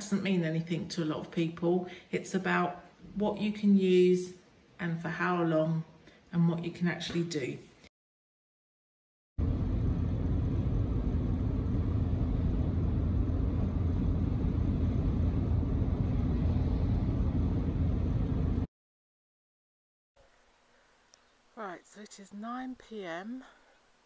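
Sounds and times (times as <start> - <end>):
car engine and tyre rumble: 9.4 - 18.7.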